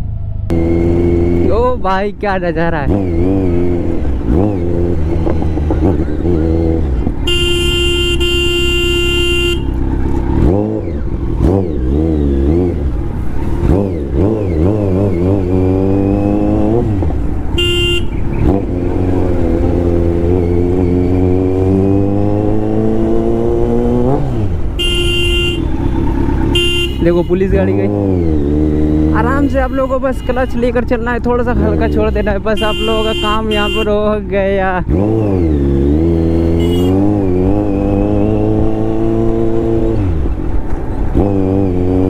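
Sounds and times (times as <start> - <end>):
motorcycle engine revving: 0.0 - 42.0
vehicle horn: 7.2 - 9.8, 17.5 - 18.5, 24.8 - 27.5, 29.3 - 30.8, 31.6 - 34.0, 36.5 - 37.0.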